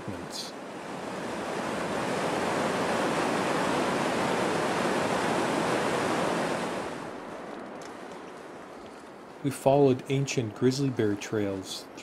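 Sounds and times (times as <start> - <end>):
river water rushing: 0.0 - 7.5.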